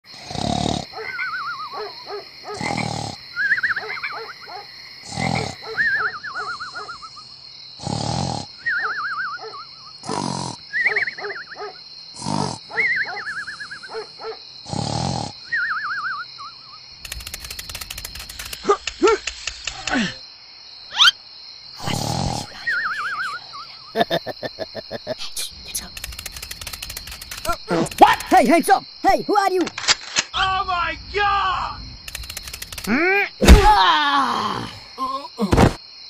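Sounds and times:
cartoon snoring: 0.1 - 1.0, 2.5 - 3.2, 5.0 - 5.8, 7.8 - 8.7, 10.0 - 10.7, 12.2 - 12.7, 14.6 - 15.4, 21.8 - 23.4
high-pitched insect drone: 0.4 - 20.3, 21.8 - 29.6, 30.4 - 33.1
birds singing: 3.3 - 4.7, 10.8 - 11.8, 12.6 - 14.4.

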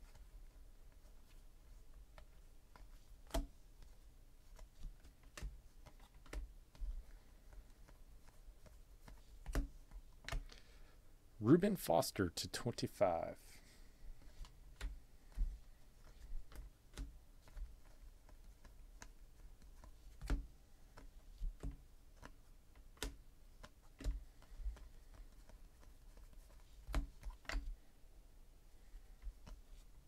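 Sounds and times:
trading cards clicking and tapping: 2.2 - 10.7, 14.2 - 27.7.

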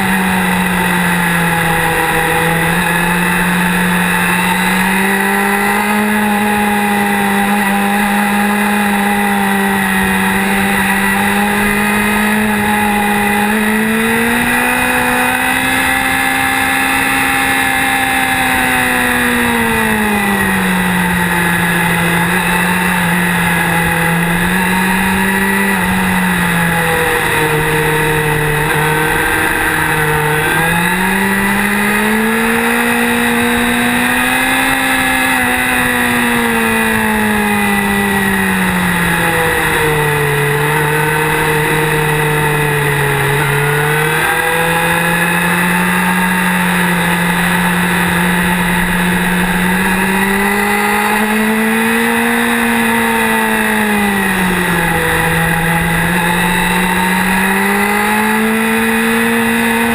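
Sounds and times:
motorcycle engine: 0.0 - 59.9.

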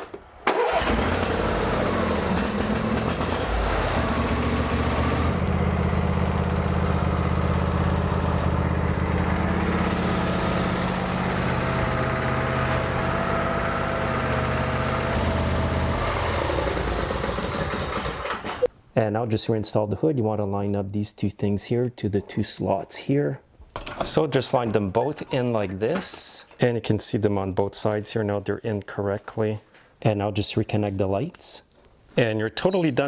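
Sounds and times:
lawn tractor engine starting and running: 0.4 - 18.7.

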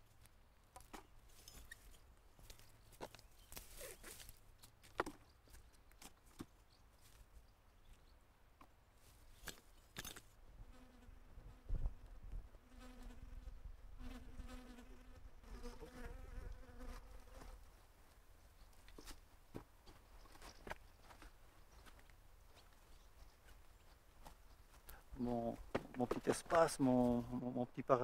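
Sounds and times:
bumblebee buzzing: 12.6 - 17.6.

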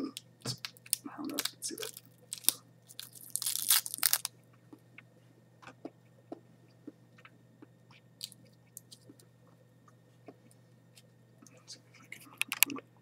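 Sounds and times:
insect shell cracking: 0.2 - 4.3.

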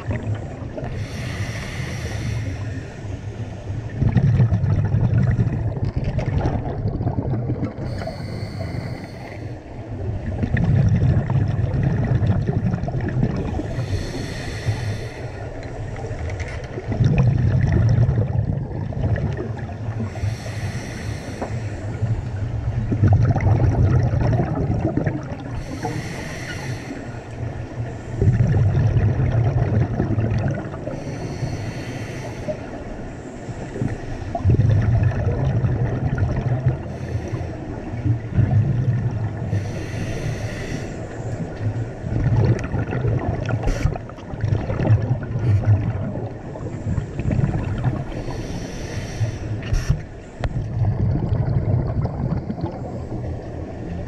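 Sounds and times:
gurgling exhaled bubbles: 0.0 - 3.1, 3.8 - 9.3, 9.9 - 26.8, 27.4 - 31.4, 33.6 - 54.0
regulator hissing inhale: 0.9 - 3.9, 7.8 - 9.8, 13.6 - 16.1, 20.0 - 22.2, 25.6 - 28.2, 30.9 - 34.3, 36.8 - 37.8, 39.5 - 41.8, 48.1 - 50.5.

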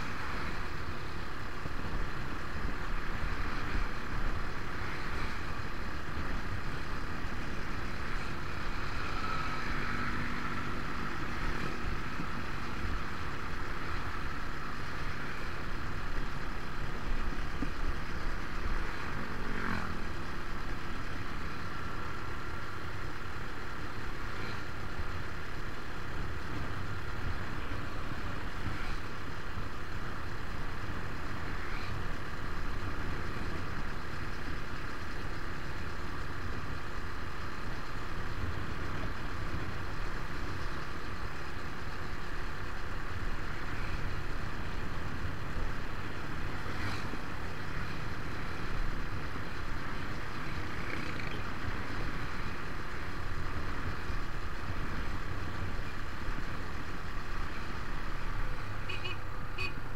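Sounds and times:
road traffic noise: 0.0 - 59.9.

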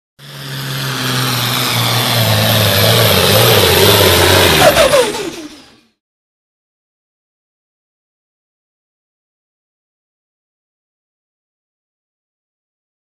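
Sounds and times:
tractor diesel engine under load: 0.2 - 6.0.

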